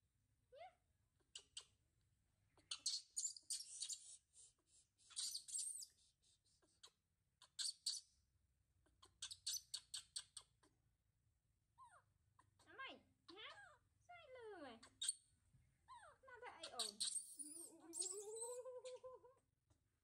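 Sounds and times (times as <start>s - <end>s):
baby monkey squeaking: 1.2s - 1.8s, 2.6s - 8.2s, 8.9s - 10.8s, 14.8s - 15.3s, 15.9s - 19.2s.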